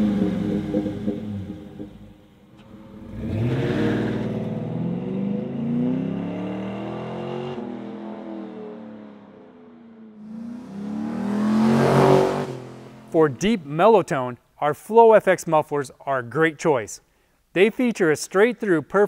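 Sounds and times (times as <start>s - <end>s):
truck exhaust pulling away: 0.0s - 9.1s, 9.8s - 13.9s
engine revving: 0.0s - 13.7s.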